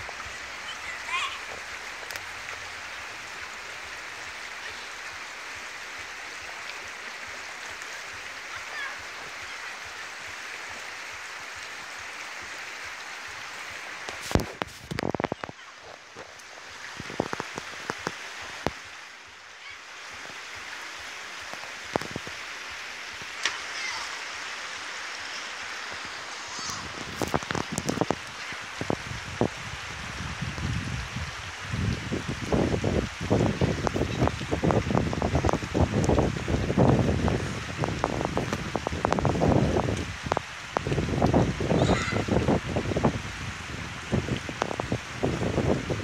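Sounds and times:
mountain stream rushing: 0.0 - 46.0.

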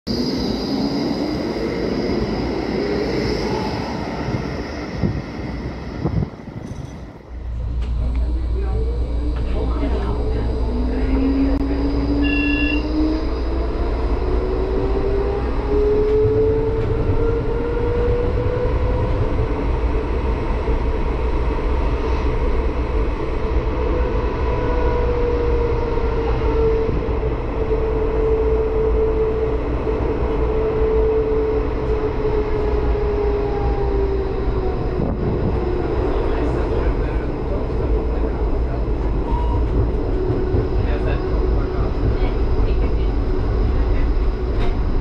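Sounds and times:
tram motors whining: 0.1 - 45.0
wheels rumbling on rails: 0.1 - 45.0
short beep: 12.2 - 12.9.

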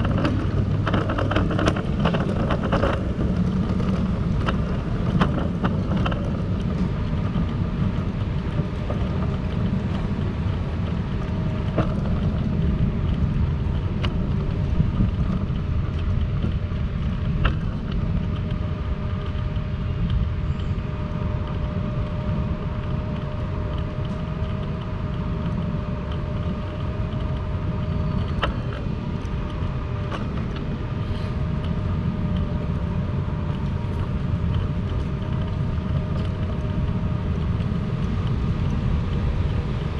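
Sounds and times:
low street rumble: 0.0 - 39.9.

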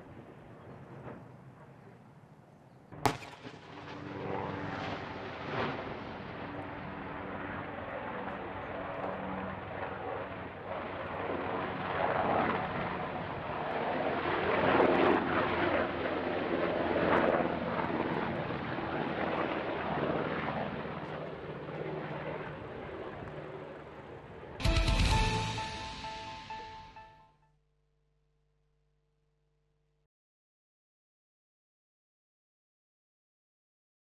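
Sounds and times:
helicopter flying by: 0.0 - 27.1
sharp crack: 3.0 - 4.1.

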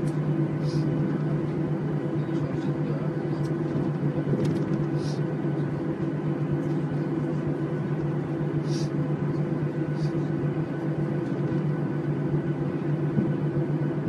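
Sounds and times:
jet engine cabin drone: 0.0 - 14.0
short hisses: 8.6 - 9.0.

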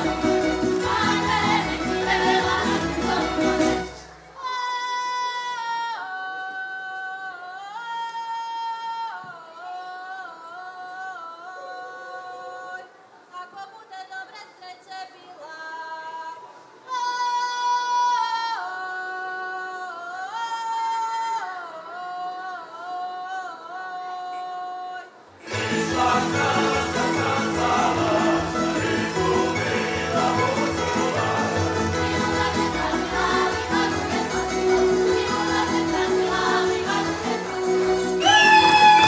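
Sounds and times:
band playing: 0.0 - 4.2, 25.5 - 39.0
women singing unaccompanied: 0.0 - 39.0.

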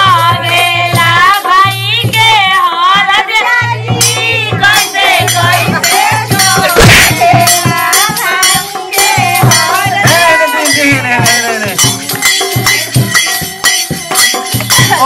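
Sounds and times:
steady drum beat: 0.0 - 15.0
person singing: 5.6 - 8.0.

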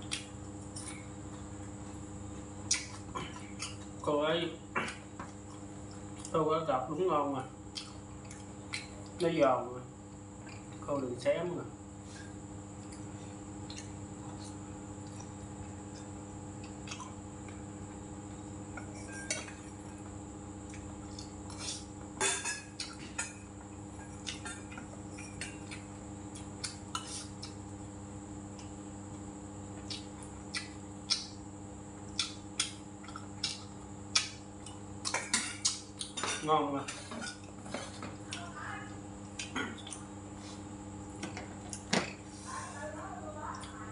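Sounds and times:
steady low hum: 0.0 - 43.9
utensils clinking against metal bowl: 18.8 - 19.7, 22.2 - 23.4, 35.1 - 38.1.

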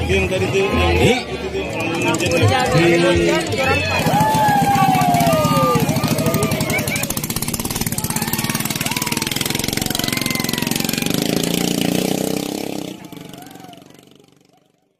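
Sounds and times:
boat engine running hard: 3.4 - 14.5.

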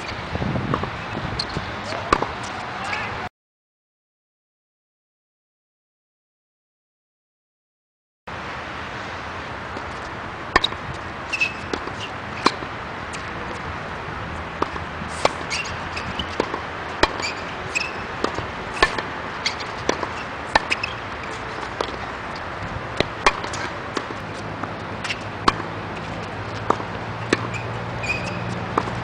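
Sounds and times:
tennis ball struck with racket: 0.7 - 3.1, 9.7 - 13.7, 14.5 - 29.0.

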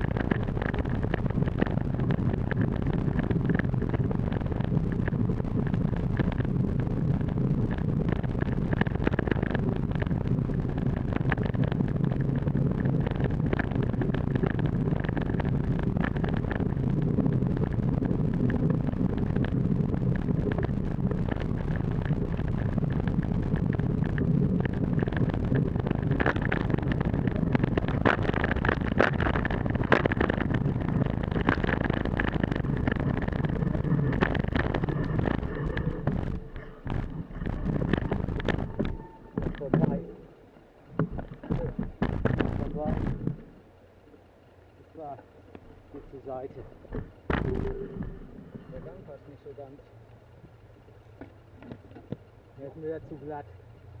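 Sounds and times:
wind on microphone: 0.0 - 43.7, 46.1 - 49.3
motorcycle engine running: 0.0 - 54.0
sharp knocks over bumps: 41.0 - 43.4, 46.6 - 49.0.

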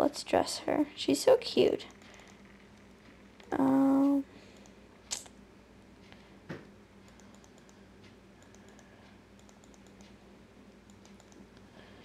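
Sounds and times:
low steady hum: 0.0 - 12.0
computer mouse clicking: 7.0 - 10.2, 10.8 - 11.7.

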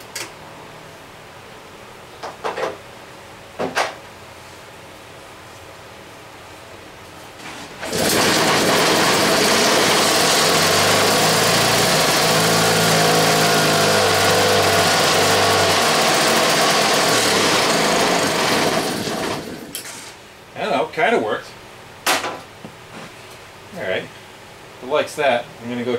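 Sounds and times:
engine rope start: 7.8 - 19.8
two-stroke engine running loudly: 7.9 - 19.7.

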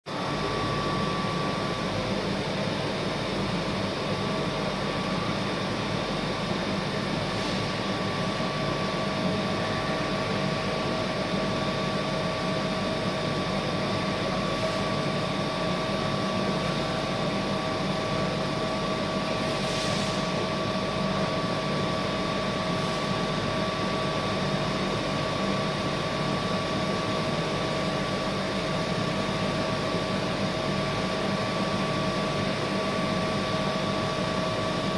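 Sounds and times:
machining center humming: 0.1 - 19.4.

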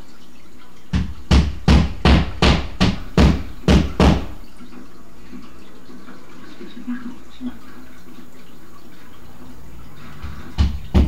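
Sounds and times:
sharp knocks: 0.9 - 4.4, 10.2 - 11.0.

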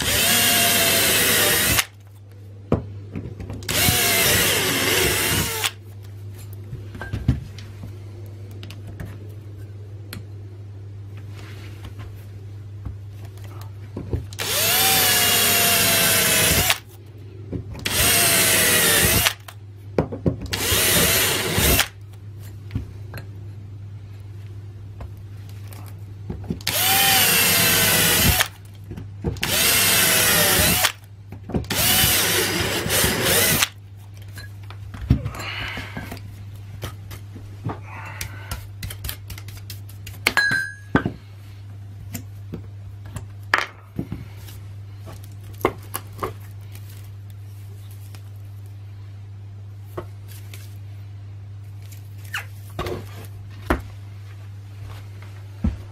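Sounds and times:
cordless drill whining: 0.0 - 1.9, 3.7 - 5.8, 14.4 - 16.8, 17.8 - 19.4, 20.5 - 21.9, 26.7 - 28.5, 29.4 - 31.0, 31.7 - 33.7.

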